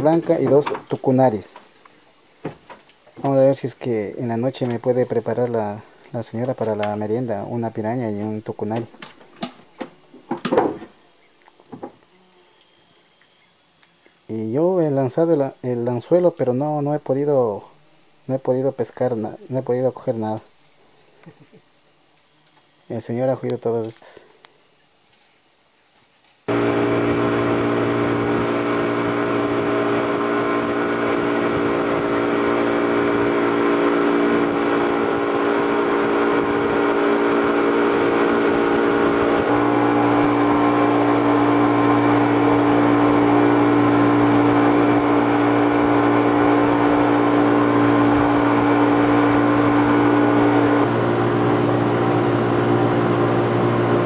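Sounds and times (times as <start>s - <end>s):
boat motor droning: 26.5s - 54.0s.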